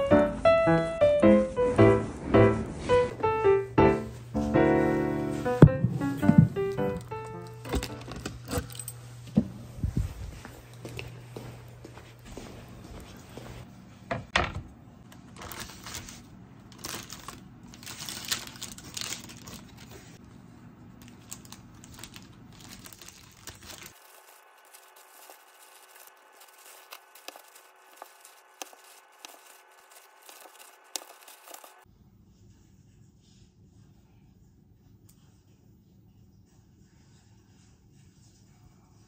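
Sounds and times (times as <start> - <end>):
handling noise: 5.3 - 11.1, 21.0 - 31.8
footsteps in slippers on tile: 9.2 - 13.7, 23.9 - 31.8
paper crinkling: 15.2 - 20.2, 21.0 - 31.8.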